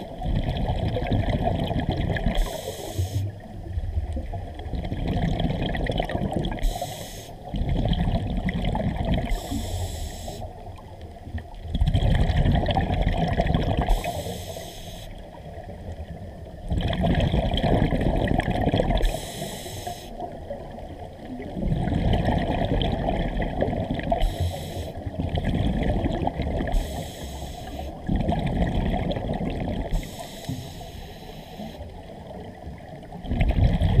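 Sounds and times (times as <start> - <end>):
bubbling exhalations underwater: 0.0 - 2.4, 4.0 - 6.6, 7.5 - 9.4, 11.7 - 14.0, 16.6 - 19.2, 21.3 - 24.2, 25.1 - 26.8, 28.0 - 30.0, 33.1 - 34.0
regulator inhalation hiss: 2.4 - 3.3, 6.6 - 7.4, 9.3 - 10.5, 13.9 - 15.2, 19.0 - 20.2, 24.2 - 25.0, 26.7 - 28.0, 29.9 - 31.9.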